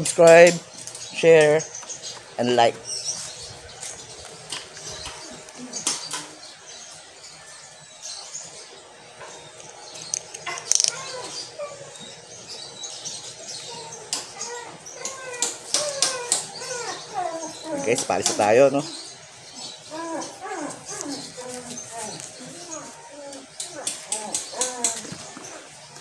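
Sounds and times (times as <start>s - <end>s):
rustling against microphone: 20.2s - 23.5s.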